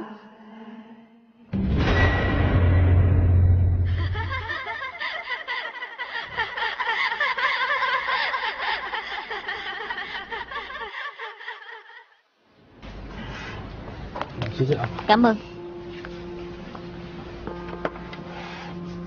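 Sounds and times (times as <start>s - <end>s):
deep boom: 1.5s - 4.5s
woman laughing: 3.9s - 12.2s.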